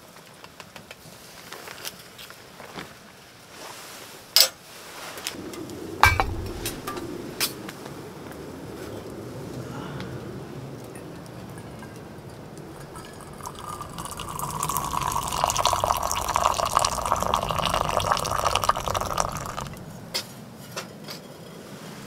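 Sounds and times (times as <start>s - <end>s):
liquid pouring into container: 6.0s - 7.1s, 12.8s - 20.1s.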